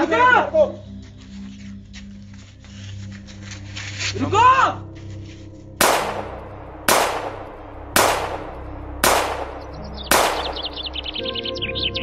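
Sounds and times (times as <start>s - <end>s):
gunshots with ringing echo: 5.8s - 11.2s
birds chirping: 5.8s - 12.0s.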